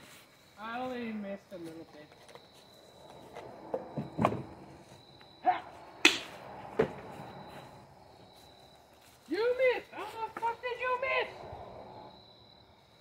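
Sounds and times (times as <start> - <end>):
sharp cracks: 5.5 - 6.6.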